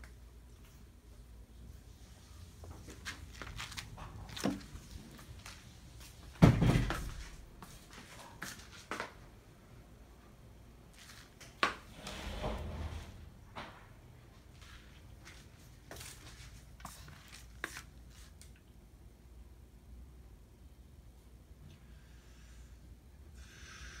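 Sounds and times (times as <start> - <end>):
heavy thump: 6.4 - 7.2.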